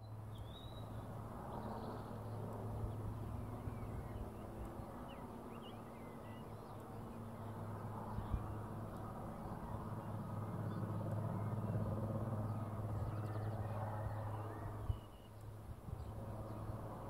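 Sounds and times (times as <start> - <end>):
birds chirping faintly: 0.0 - 17.0
distant helicopter hovering: 0.0 - 17.0.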